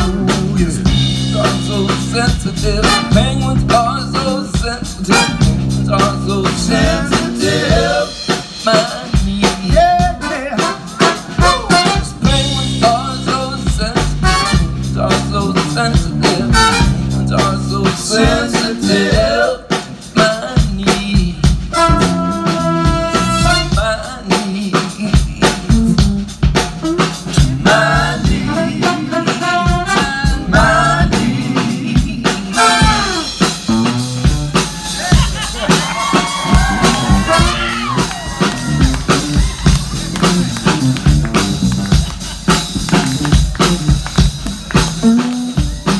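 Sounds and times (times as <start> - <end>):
person singing: 0.0 - 33.5
band playing live: 0.0 - 45.9.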